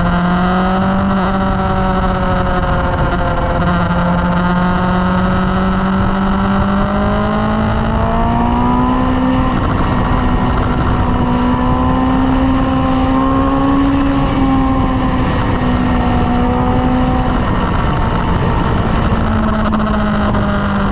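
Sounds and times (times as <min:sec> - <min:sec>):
sport bike engine cruising: 0:00.0 - 0:20.9
wind rush: 0:00.0 - 0:20.9.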